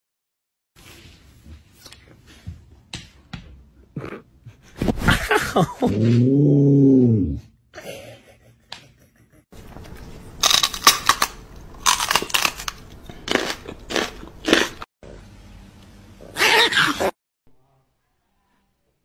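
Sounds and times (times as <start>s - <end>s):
loud crunches: 10.4s - 14.9s.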